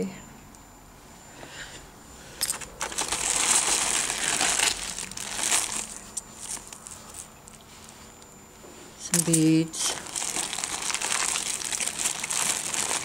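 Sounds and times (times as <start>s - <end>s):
plastic bags crinkling: 2.5s - 7.6s, 9.2s - 13.0s.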